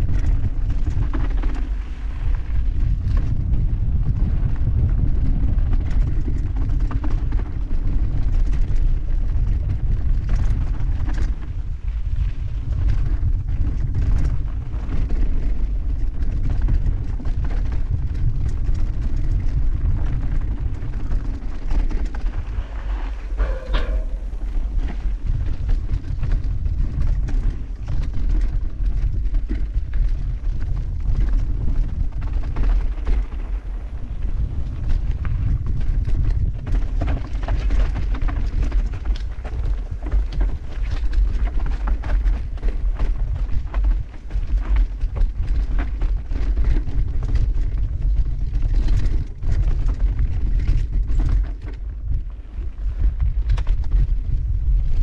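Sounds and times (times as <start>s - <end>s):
bike rattling over gravel: 0.0s - 55.0s
wind buffeting microphone: 0.0s - 55.0s
high-pitched squeal: 23.4s - 24.8s.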